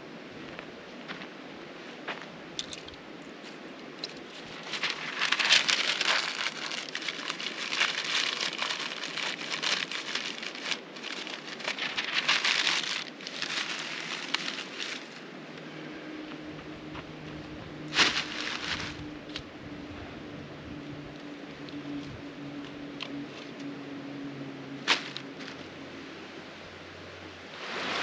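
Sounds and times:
dry tinder crinkling: 2.6 - 15.3, 17.9 - 19.4, 24.7 - 25.8.

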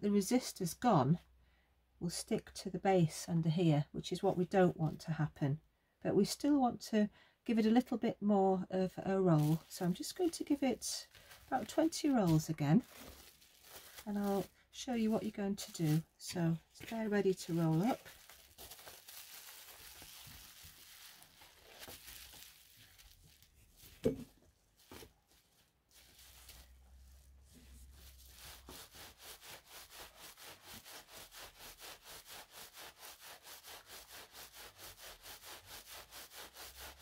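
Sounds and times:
rolling rubbing strokes: 9.4 - 24.2, 25.9 - 37.0.

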